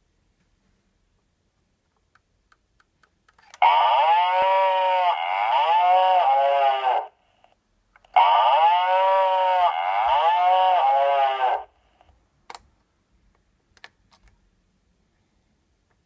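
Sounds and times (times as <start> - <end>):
camera speaker wavering call: 3.6 - 7.2, 8.2 - 11.7.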